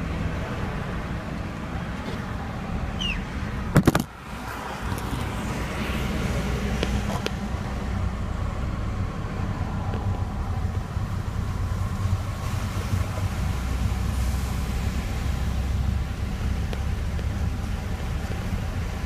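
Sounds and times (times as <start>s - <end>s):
car engine and road rumble: 0.0s - 19.0s
tyres through water: 9.3s - 19.0s.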